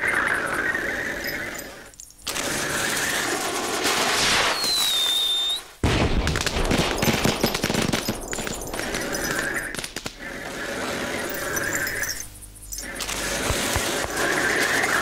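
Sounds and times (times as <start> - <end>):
short high whistle: 4.5 - 5.7
rapid crackling rattle: 6.4 - 15.0.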